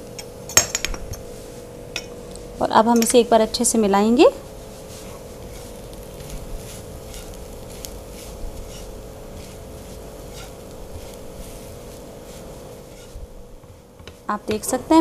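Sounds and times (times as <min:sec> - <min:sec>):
steady low hum: 0:00.0 - 0:15.0
spatula scraping frying pan: 0:04.4 - 0:14.0.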